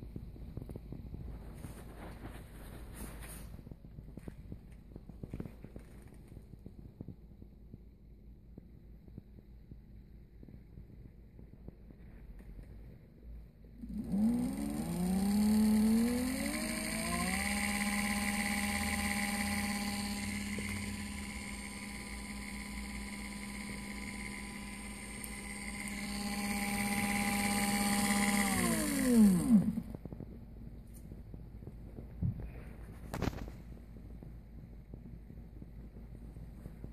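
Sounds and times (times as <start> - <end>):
electric motor whining: 13.8 - 30.1.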